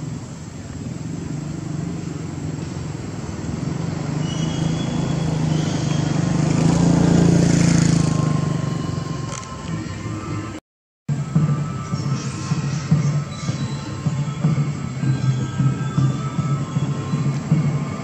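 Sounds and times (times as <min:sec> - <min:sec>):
vehicle engine running: 0:00.0 - 0:09.8.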